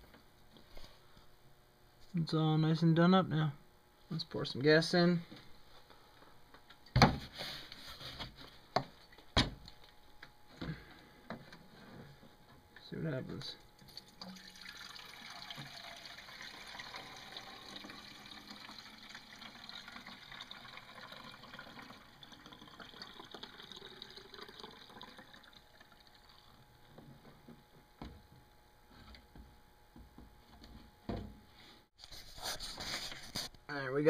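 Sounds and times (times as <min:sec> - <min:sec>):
fuel trickling into a tank: 0:13.8 - 0:26.8.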